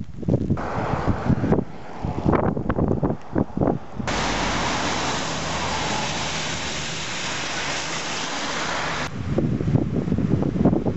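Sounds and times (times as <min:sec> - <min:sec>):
water hissing on flooded street: 0:04.1 - 0:09.1.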